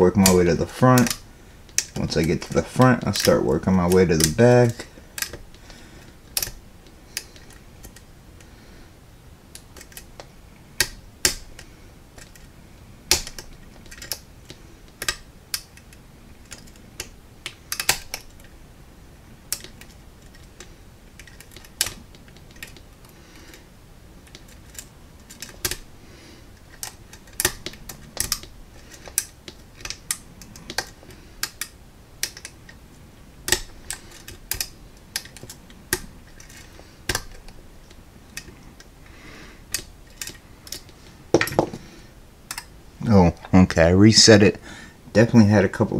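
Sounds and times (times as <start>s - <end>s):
sharp metallic lock picking clicks: 6.4s - 6.6s, 15.0s - 18.5s, 26.7s - 32.7s, 33.5s - 37.6s.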